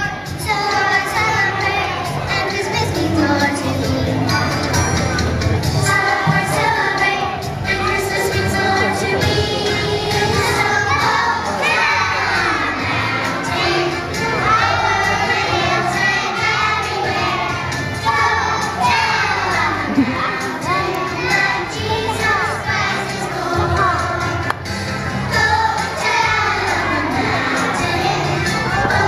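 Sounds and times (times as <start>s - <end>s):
children singing: 0.0s - 4.8s, 5.7s - 29.0s
musical accompaniment: 0.0s - 29.0s.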